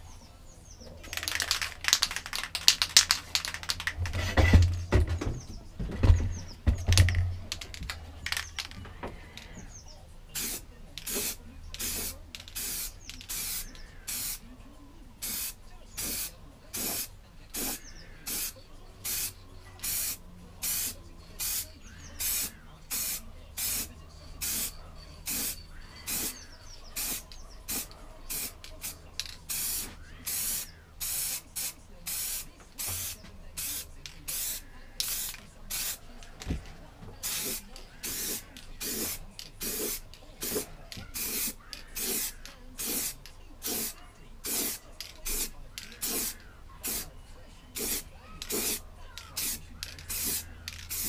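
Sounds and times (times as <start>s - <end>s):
spray can hissing: 1.1s - 4.7s, 6.8s - 8.8s, 10.4s - 14.4s, 15.2s - 26.4s, 27.0s - 36.6s, 37.2s - 47.1s, 47.8s - 51.0s.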